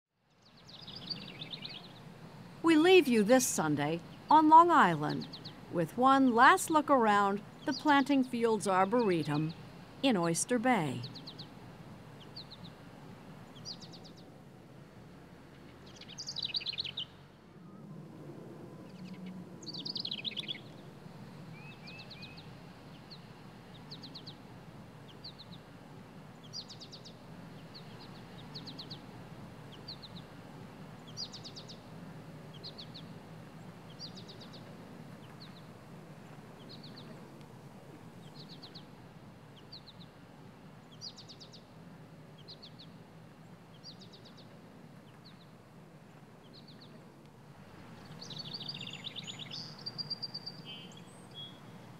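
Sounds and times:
low outdoor background hum: 0:00.1 - 0:51.9
small birds chirping: 0:00.4 - 0:02.1, 0:02.9 - 0:11.6, 0:12.2 - 0:12.8, 0:13.5 - 0:14.3, 0:15.8 - 0:17.2, 0:18.9 - 0:20.9, 0:25.0 - 0:25.7, 0:26.4 - 0:30.3, 0:31.0 - 0:31.9, 0:32.5 - 0:35.7, 0:36.3 - 0:37.4, 0:38.2 - 0:40.2, 0:40.8 - 0:41.8, 0:42.4 - 0:43.0, 0:43.6 - 0:45.6, 0:46.4 - 0:47.1, 0:48.0 - 0:51.8.

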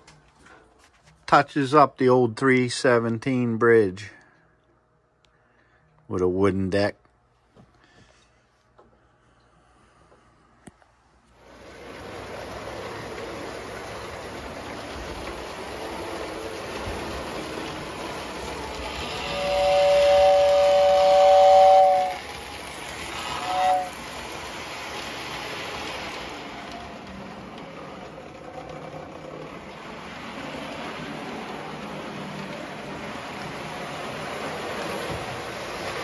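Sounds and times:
model train rumbling hiss: 0:11.4 - 0:36.0
steam whistle: 0:19.0 - 0:22.4, 0:23.1 - 0:24.0.

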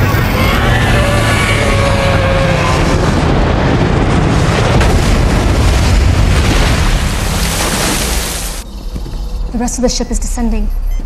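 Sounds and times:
spacecraft roar: 0:00.0 - 0:07.4.

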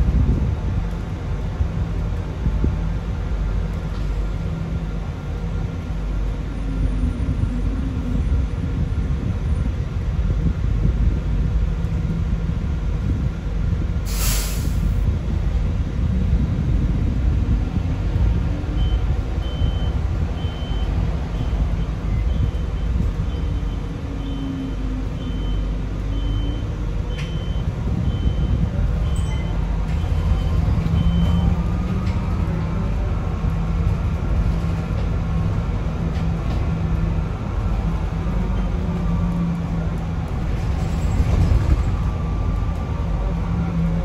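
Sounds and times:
bus interior rumble: 0:00.0 - 0:44.0
brake air hiss: 0:14.1 - 0:15.0.

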